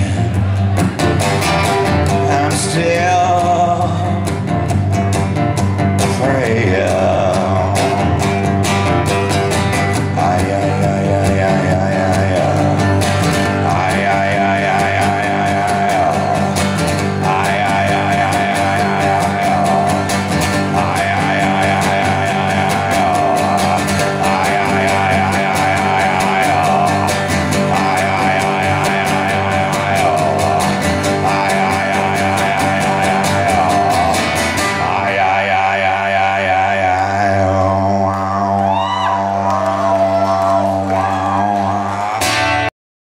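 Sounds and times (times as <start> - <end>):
amplified rock guitar: 0.0 - 37.0, 38.6 - 42.7.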